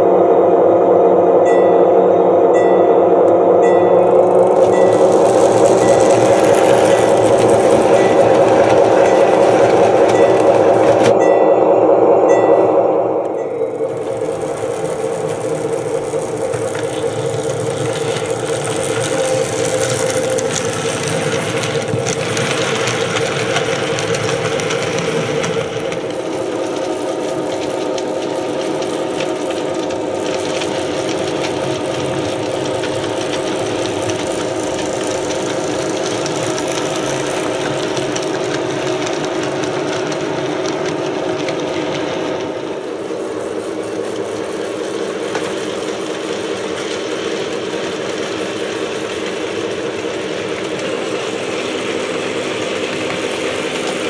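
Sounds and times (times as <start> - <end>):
model locomotive engine drone: 0.0 - 54.0.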